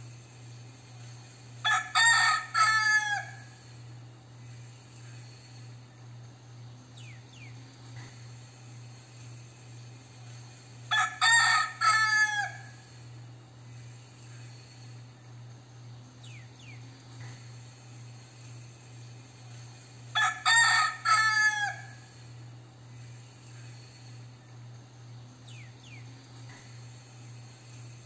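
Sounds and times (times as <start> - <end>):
rooster crowing: 1.6 - 3.8, 10.9 - 13.0, 20.1 - 22.2.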